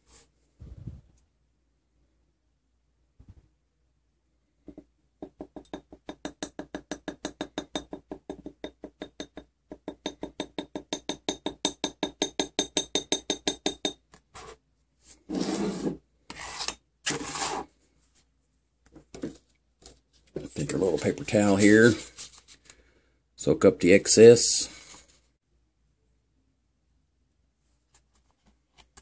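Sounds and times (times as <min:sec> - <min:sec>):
paper towel rustling: 0:20.2 - 0:22.6.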